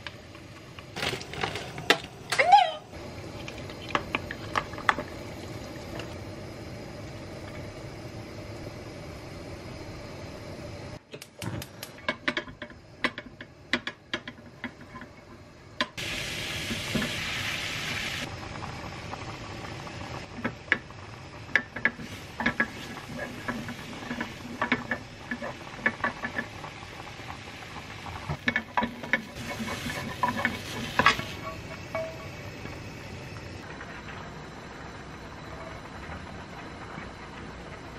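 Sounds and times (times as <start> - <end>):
food sizzling in pan: 16.0 - 33.6
utensils scraping frying pan: 21.8 - 26.5, 28.4 - 32.3.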